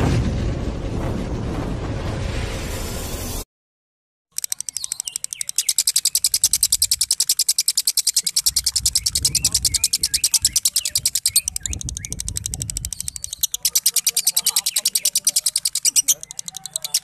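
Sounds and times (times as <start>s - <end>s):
lovebird chattering rattle: 4.3s - 17.0s.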